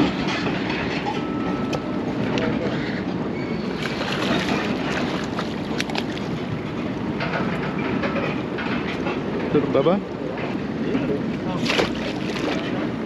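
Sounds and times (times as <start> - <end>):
boat engine rumble: 0.0 - 13.0.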